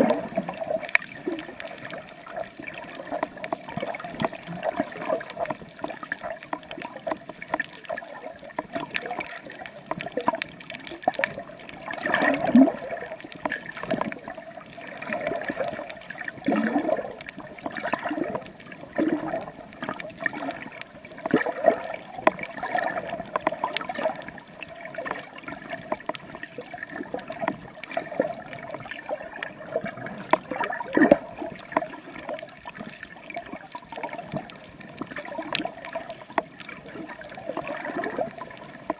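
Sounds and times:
bubbly surges: 0.0s - 5.8s, 7.6s - 25.9s
water sloshing and gurgling: 0.0s - 38.9s
light ticks: 0.8s - 11.9s, 12.6s - 14.4s, 22.2s - 26.5s, 30.2s - 37.4s.

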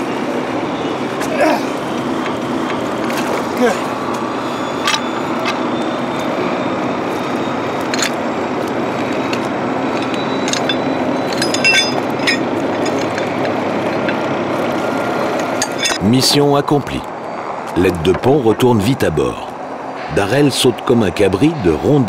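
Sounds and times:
boat engine churning: 0.6s - 22.0s
metal chain clinking: 7.8s - 8.3s, 9.2s - 14.3s, 15.5s - 16.0s.

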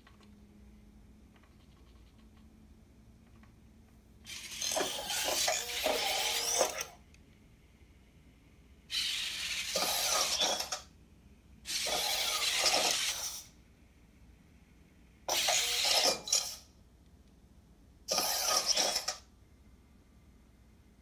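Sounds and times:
robot toy servo motors whirring: 4.3s - 7.0s, 8.9s - 10.8s, 11.7s - 13.5s, 15.3s - 16.6s, 18.1s - 19.2s.

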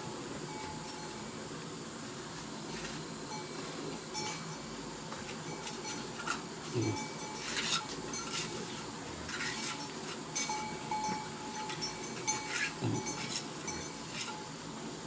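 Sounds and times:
trowel scraping bricks and mortar: 7.4s - 10.3s.

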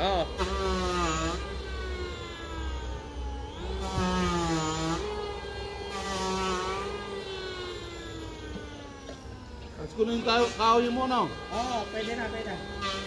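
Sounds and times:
machine humming: 0.0s - 13.0s.

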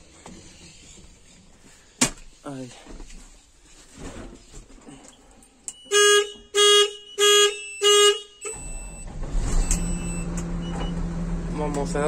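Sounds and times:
engine low rumble: 8.6s - 12.0s.

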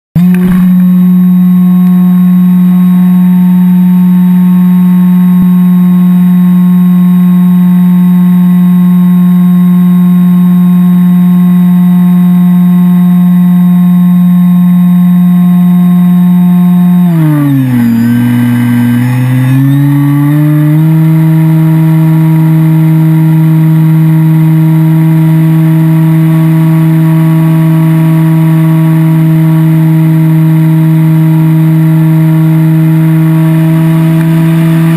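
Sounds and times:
electric motor and propeller: 0.2s - 6.0s, 16.3s - 34.9s.

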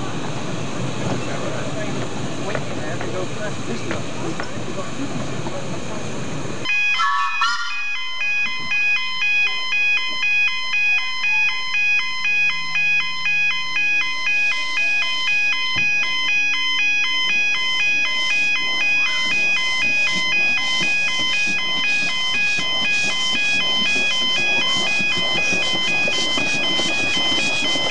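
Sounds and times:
electronic chiming tune: 6.7s - 27.9s.

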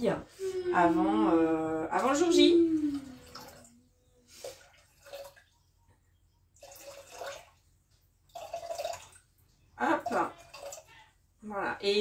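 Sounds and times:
water splashing into bowl: 2.0s - 3.8s, 6.6s - 7.6s, 8.3s - 11.0s.

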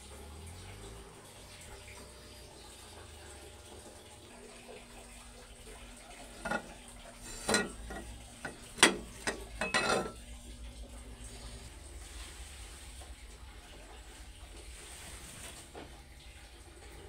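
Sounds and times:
metal utensil scraping a pot: 6.2s - 10.3s.

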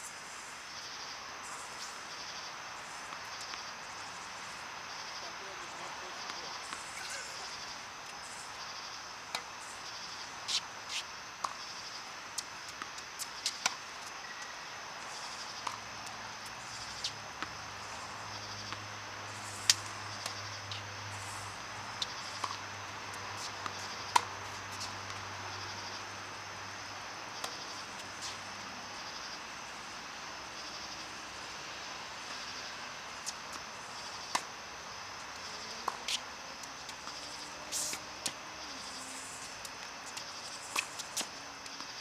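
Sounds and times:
insects chirping: 0.0s - 42.0s
tennis balls hit and bouncing: 5.6s - 14.5s, 19.7s - 20.9s, 21.9s - 25.9s, 26.8s - 28.4s, 32.2s - 38.6s, 39.5s - 42.0s.

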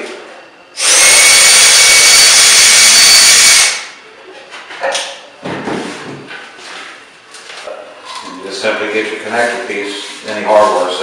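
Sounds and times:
cordless drill running: 0.8s - 3.9s.

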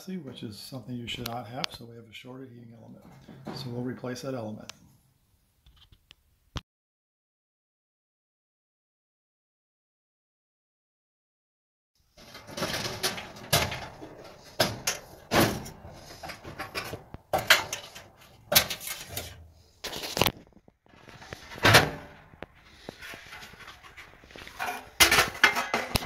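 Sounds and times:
sheet metal clanks and scrapes: 3.0s - 3.8s, 12.2s - 20.2s, 21.0s - 26.0s.

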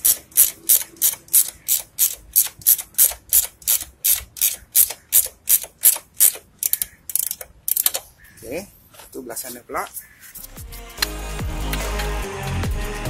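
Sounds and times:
ratchet wrench clicking: 0.0s - 8.1s.

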